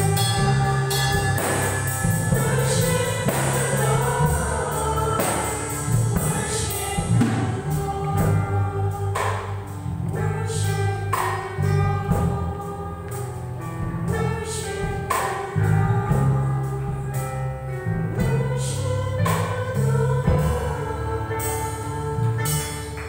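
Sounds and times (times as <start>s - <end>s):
drum kit with cymbal crashes: 0.0s - 12.7s
women singing together: 0.0s - 13.2s, 14.1s - 17.2s, 18.2s - 23.0s
electric keyboard: 0.0s - 23.0s.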